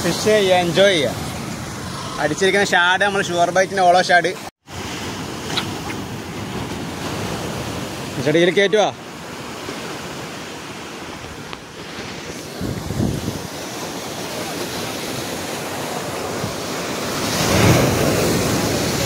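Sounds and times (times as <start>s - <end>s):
sea surf breaking on rocks: 4.7s - 19.0s
wind on microphone: 12.2s - 13.8s.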